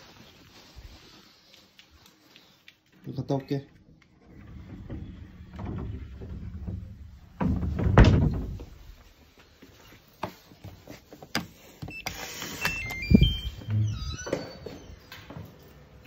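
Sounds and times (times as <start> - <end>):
electronic beeps tune: 11.9 - 15.0.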